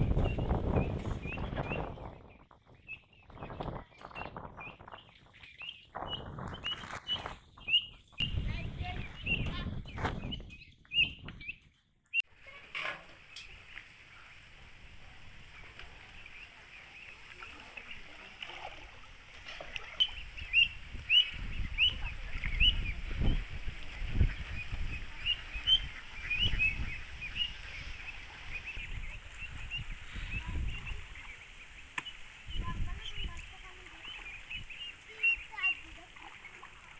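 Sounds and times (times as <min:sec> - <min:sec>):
small birds chirping: 0:00.0 - 0:36.9
wading through shallow water: 0:13.5 - 0:36.9.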